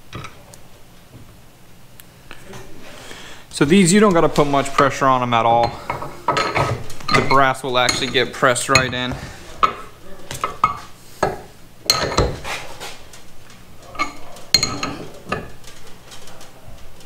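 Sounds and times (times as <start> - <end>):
metal parts clinking against vise: 5.6 - 9.0, 14.0 - 15.5.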